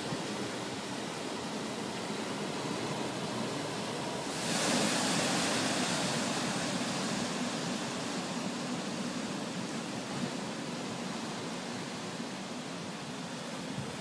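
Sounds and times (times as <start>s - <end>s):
hiss of breaking water: 0.0s - 14.0s
ocean surf rushing: 0.0s - 14.0s.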